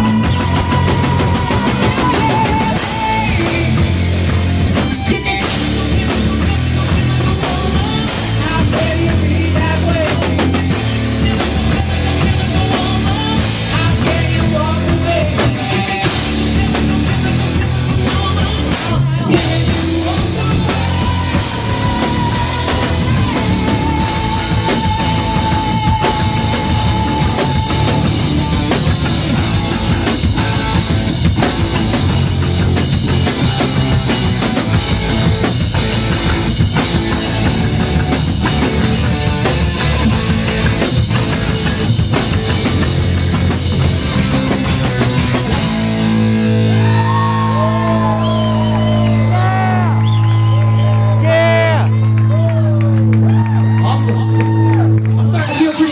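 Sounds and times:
person singing: 0.0s - 29.4s
live rock band playing: 0.0s - 55.9s.

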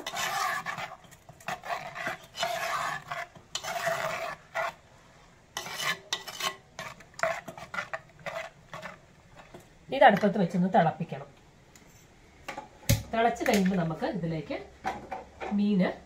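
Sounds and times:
metal spoon scraping clay pot: 0.0s - 4.9s, 5.5s - 9.6s.

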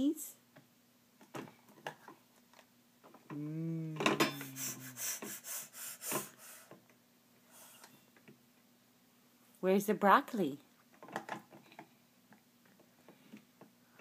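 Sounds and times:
person humming: 3.3s - 6.4s.

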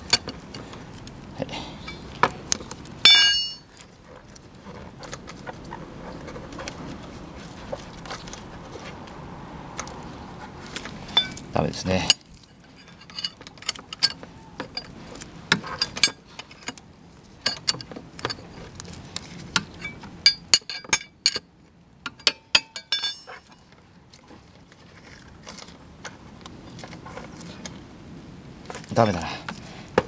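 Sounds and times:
metal tools clinking and clicking: 3.0s - 3.8s, 11.1s - 14.9s, 15.6s - 16.8s, 17.4s - 18.4s, 19.6s - 21.5s, 22.1s - 23.7s.

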